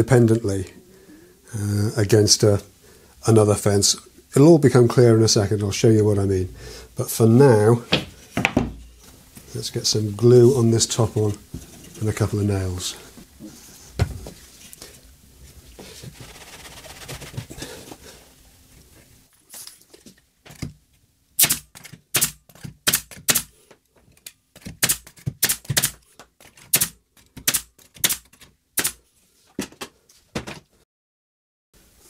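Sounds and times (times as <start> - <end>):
handling of wooden workpiece: 7.8 - 8.9
brad nailer shots: 21.4 - 23.5, 24.6 - 26.0, 26.6 - 29.0.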